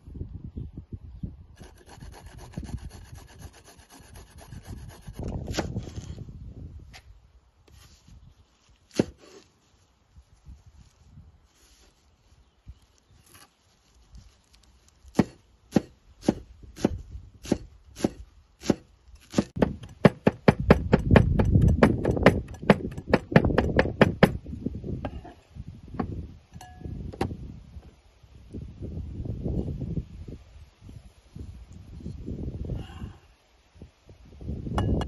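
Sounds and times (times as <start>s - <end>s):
knife chopping herbs on wood: 8.9s - 9.4s, 15.1s - 24.4s.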